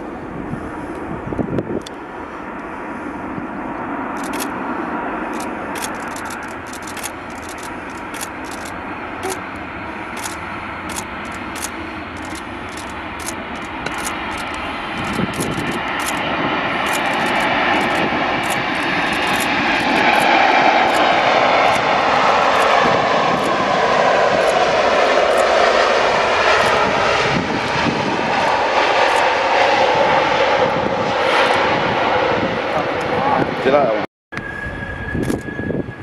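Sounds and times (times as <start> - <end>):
jet engine noise: 0.0 - 36.0
sharp high ticks: 5.3 - 9.4, 10.2 - 16.2.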